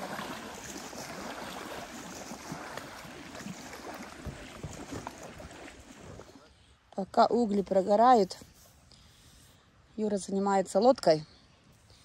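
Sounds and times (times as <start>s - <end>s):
river water rushing and lapping: 0.0s - 6.9s.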